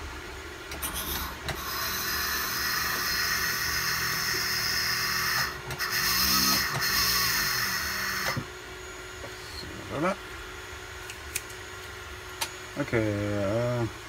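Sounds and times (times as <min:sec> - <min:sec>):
electric drill whining: 0:00.9 - 0:08.5.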